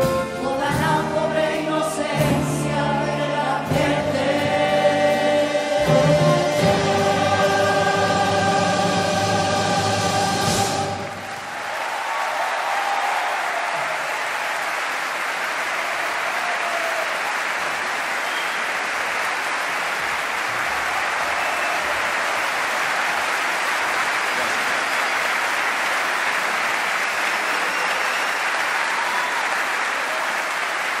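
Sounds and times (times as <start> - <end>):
audience applauding: 10.8 - 31.0
faint cheers: 11.2 - 18.9, 20.4 - 23.7, 26.8 - 31.0.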